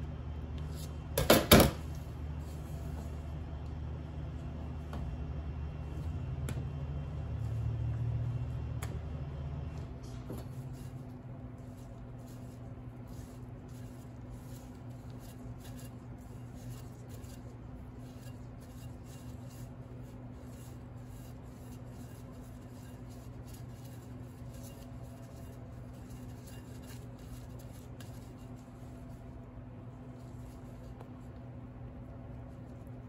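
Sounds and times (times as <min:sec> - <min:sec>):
steady low hum: 0:00.0 - 0:33.0
tools scraping buttercream: 0:10.4 - 0:29.4.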